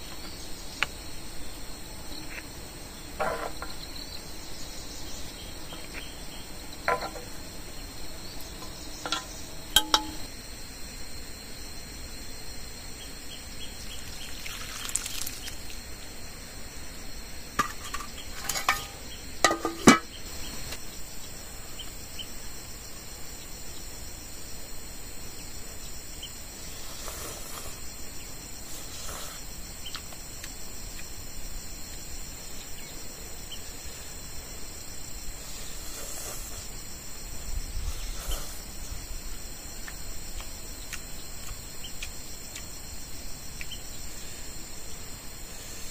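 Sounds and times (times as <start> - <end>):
insect chorus trilling: 0.0 - 45.9
sharp clinks and knocks: 6.9 - 7.4, 8.6 - 10.3, 17.6 - 20.2.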